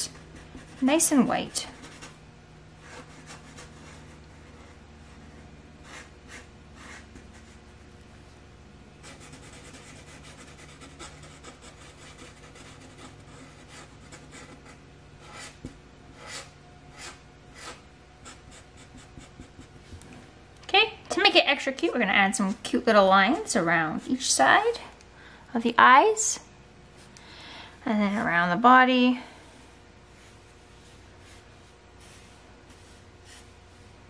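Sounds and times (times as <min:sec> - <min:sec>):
marker scratching on paper: 0:02.8 - 0:07.6, 0:09.0 - 0:19.8.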